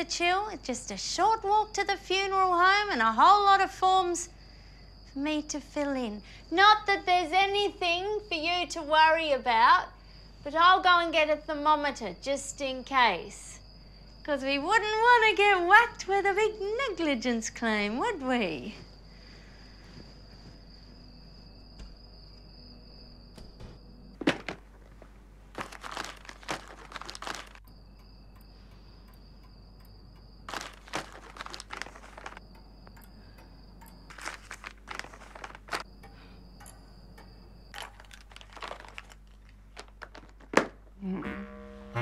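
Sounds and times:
small objects rummaged through: 0:24.2 - 0:27.6, 0:30.5 - 0:32.4, 0:34.1 - 0:35.9, 0:37.7 - 0:40.7
faint high whine: 0:40.9 - 0:42.0.

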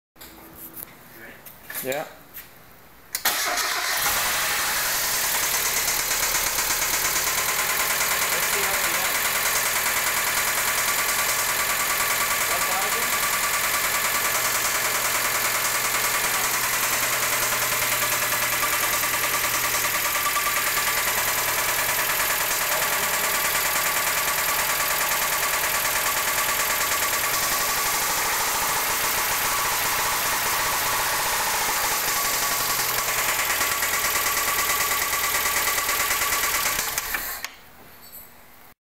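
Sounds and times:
car engine running: 0:04.0 - 0:37.1
rapid ticking clatter: 0:31.8 - 0:37.1.

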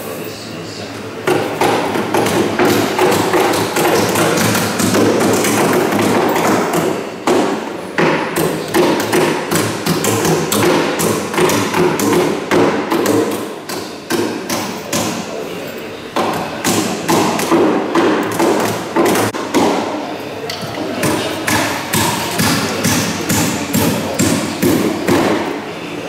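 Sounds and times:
hammers striking timber: 0:01.3 - 0:15.3, 0:16.2 - 0:19.9, 0:21.0 - 0:25.5.

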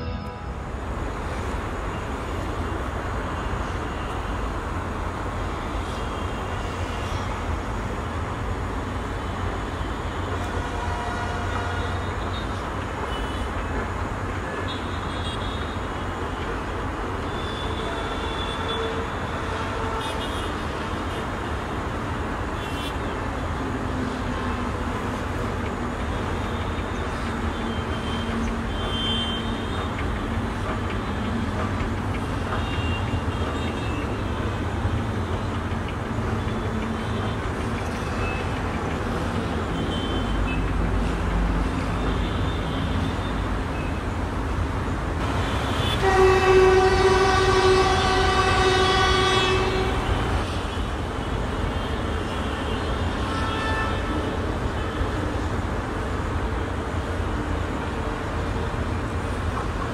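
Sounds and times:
train horn blast: 0:00.0 - 0:00.9, 0:10.4 - 0:12.5, 0:17.4 - 0:20.6, 0:45.3 - 0:50.8, 0:52.3 - 0:54.3.

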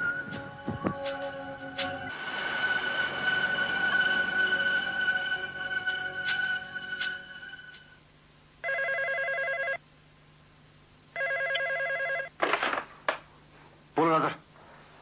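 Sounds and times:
electronic telephone ringing: 0:08.6 - 0:09.8, 0:11.2 - 0:12.3.

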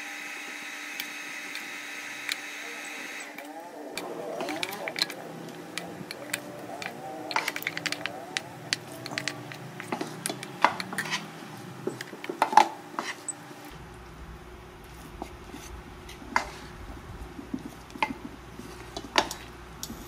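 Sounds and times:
utensil clinking and scraping in wok: 0:04.0 - 0:13.4, 0:17.5 - 0:20.0.

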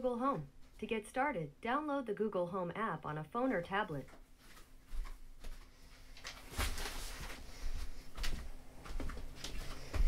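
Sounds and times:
rustling: 0:04.4 - 0:10.0.

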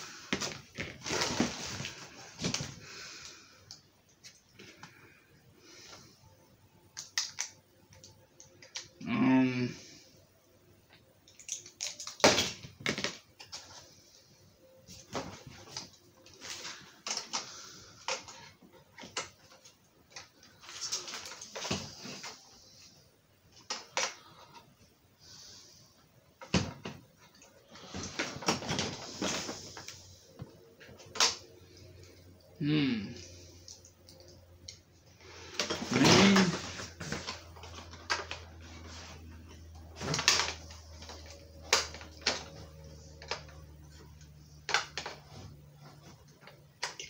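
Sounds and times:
plastic parts clicking and rustling: 0:06.9 - 0:09.0, 0:11.1 - 0:14.2, 0:14.8 - 0:24.8, 0:26.4 - 0:32.3, 0:33.3 - 0:47.0
plastic parts rattling: 0:14.9 - 0:22.5, 0:39.5 - 0:43.6.

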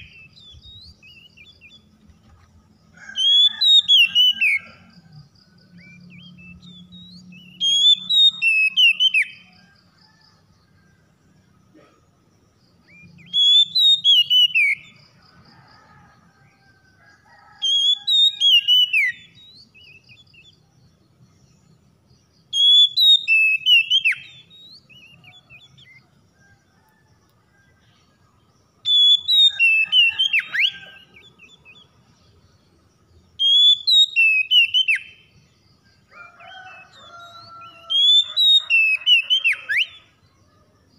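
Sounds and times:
bird singing whistled notes: 0:00.0 - 0:02.0, 0:05.7 - 0:09.8, 0:12.8 - 0:15.0, 0:17.6 - 0:21.8, 0:22.4 - 0:26.0, 0:28.8 - 0:31.9, 0:33.1 - 0:35.4, 0:36.5 - 0:40.2.

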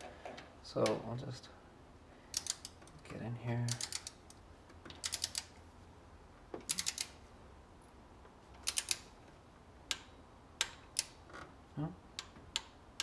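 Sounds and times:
torque wrench clicking: 0:02.3 - 0:02.9, 0:03.7 - 0:05.6, 0:06.6 - 0:07.2, 0:08.6 - 0:09.1, 0:09.9 - 0:11.2.

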